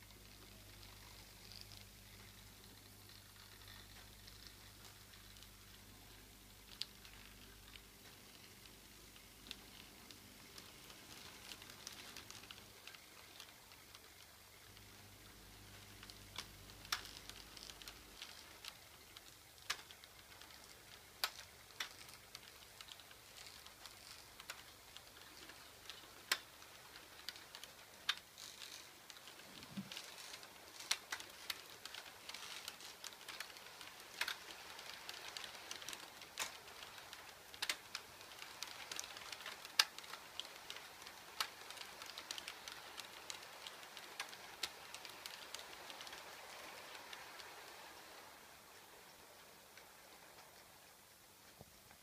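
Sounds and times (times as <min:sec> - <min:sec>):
faint rolling hiss: 0:00.0 - 0:52.0
model train wheels clicking over rail joints: 0:00.0 - 0:52.0.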